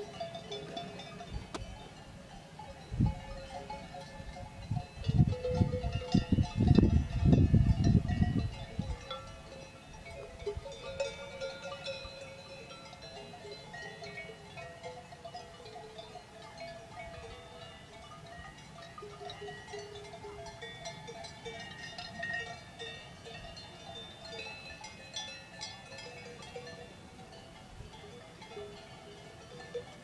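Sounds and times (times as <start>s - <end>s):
cowbells clanking: 0.0s - 30.0s.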